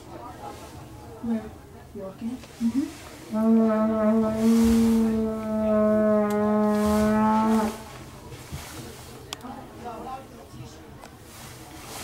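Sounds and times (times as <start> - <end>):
horn long steady note: 3.3 - 8.0.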